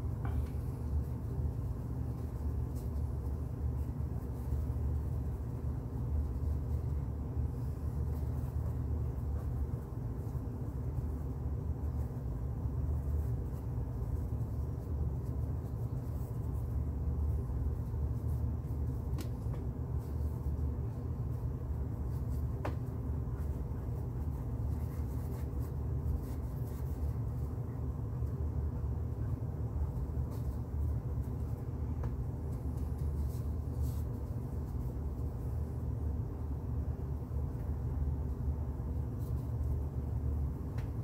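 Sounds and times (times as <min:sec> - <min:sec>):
low room rumble: 0:00.0 - 0:41.0
paintbrush scratching on canvas: 0:00.3 - 0:27.7.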